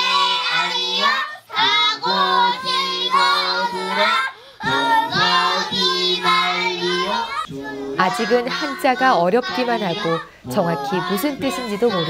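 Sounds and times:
children chanting: 0.0 - 12.0.

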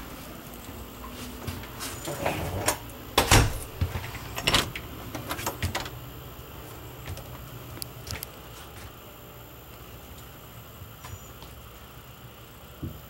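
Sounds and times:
footsteps: 0.0 - 2.2, 6.6 - 9.1.

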